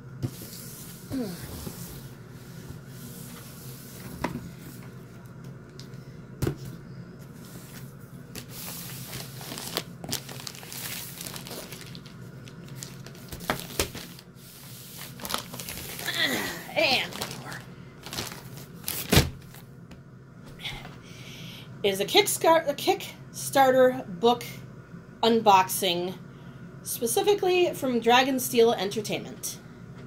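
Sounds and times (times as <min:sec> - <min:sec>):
plastic bag crinkling: 0:08.4 - 0:19.6.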